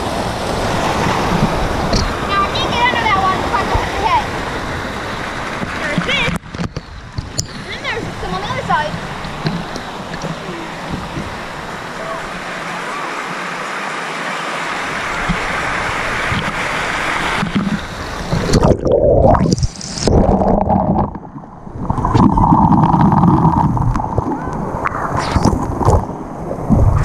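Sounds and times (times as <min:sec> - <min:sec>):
pool water splashing: 0:00.0 - 0:06.4, 0:07.6 - 0:27.0
underwater bubbles gurgling: 0:17.3 - 0:27.0.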